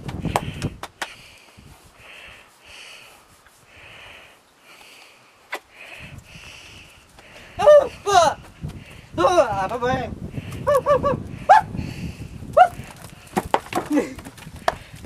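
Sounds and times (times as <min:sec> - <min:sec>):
hand rubbing horse's coat: 0:01.7 - 0:03.7.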